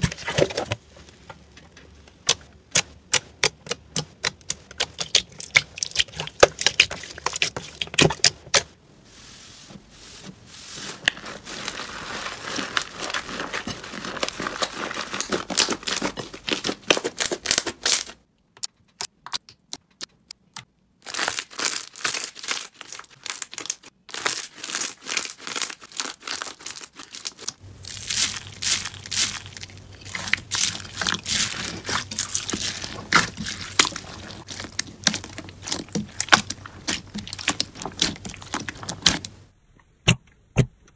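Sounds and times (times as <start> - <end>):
slime crackling: 2.0 - 8.6, 10.7 - 18.2, 21.0 - 39.5.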